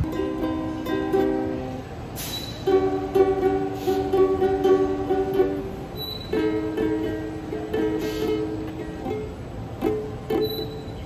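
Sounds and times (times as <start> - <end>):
ukulele plucked chords: 0.0 - 11.0.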